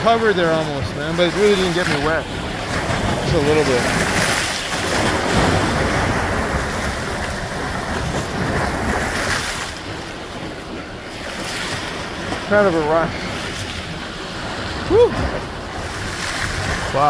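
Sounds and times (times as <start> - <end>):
ocean waves crashing: 0.0 - 17.0
wind buffeting microphone: 0.0 - 17.0.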